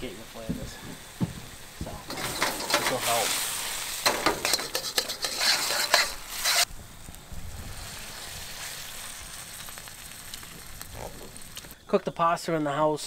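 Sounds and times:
vegetables sizzling in a wok: 0.0s - 11.8s
faint steady hiss: 0.0s - 13.0s
metal tongs clicking on pan: 4.0s - 6.2s.

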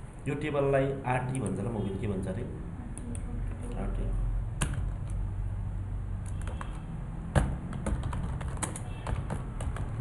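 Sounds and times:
computer keyboard key clicks: 6.2s - 6.8s, 7.7s - 10.0s.

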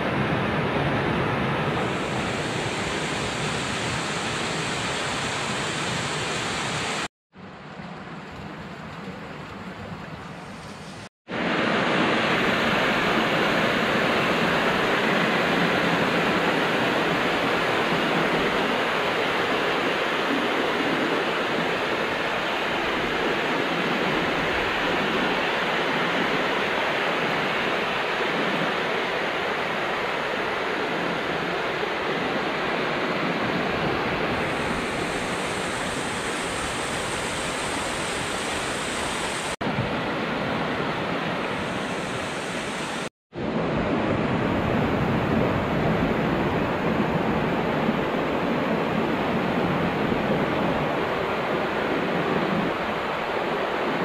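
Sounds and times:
bright water hiss: 1.9s - 7.1s, 34.4s - 39.6s, 41.5s - 43.1s
stream rushing over rocks: 11.3s - 54.0s.

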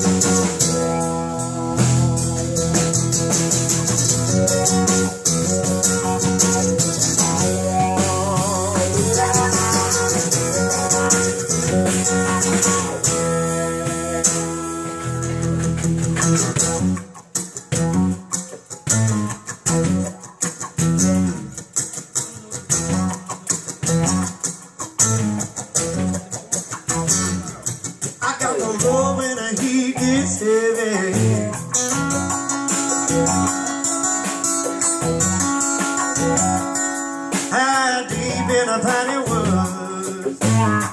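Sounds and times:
rock band playing: 0.0s - 40.9s
person singing: 4.6s - 14.4s, 28.2s - 31.6s, 37.4s - 40.9s.

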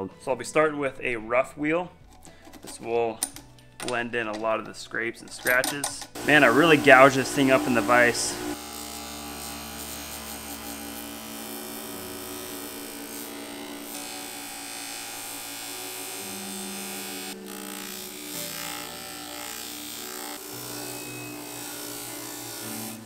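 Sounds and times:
abrasive wheel scrubbing metal: 6.2s - 8.6s
bench buffing motor humming: 6.2s - 23.0s.

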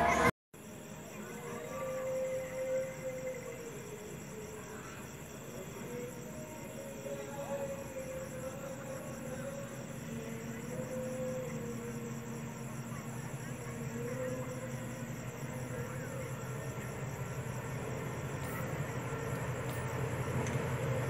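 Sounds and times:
insects trilling: 0.0s - 21.0s
diesel locomotive rumbling: 14.8s - 21.0s.

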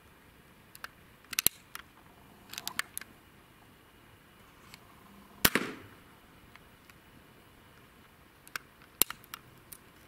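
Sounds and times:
light mechanical clicks: 0.7s - 1.9s
air rifle shot: 5.4s - 6.0s.

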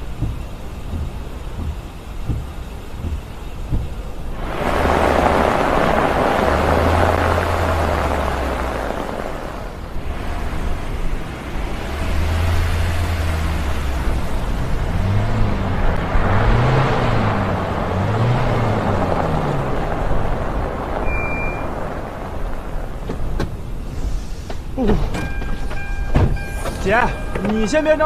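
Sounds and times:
car door clicks: 0.0s - 4.2s, 24.5s - 27.7s
car driving over snow: 0.0s - 28.0s.

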